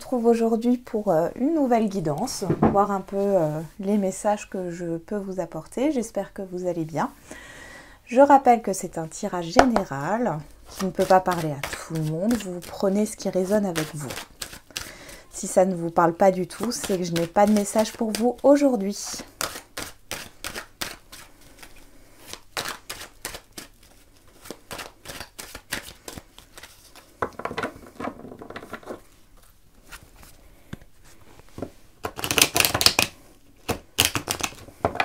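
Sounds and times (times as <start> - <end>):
cards shuffling: 10.7 - 14.9, 19.4 - 27.8, 31.1 - 34.9.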